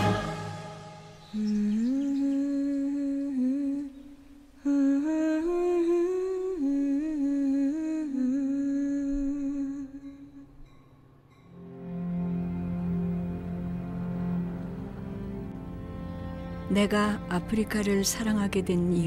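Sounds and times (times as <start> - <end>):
person humming a melody: 1.2 - 10.6.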